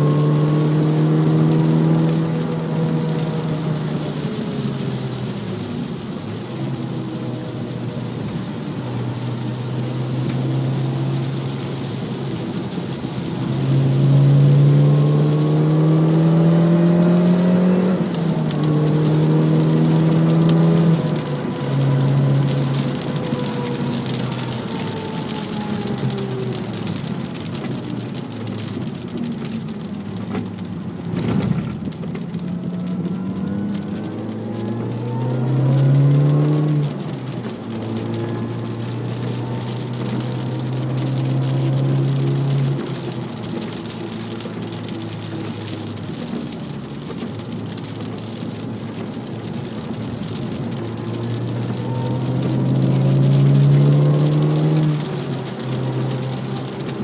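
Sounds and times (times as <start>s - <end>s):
car engine revving: 0.0s - 57.0s.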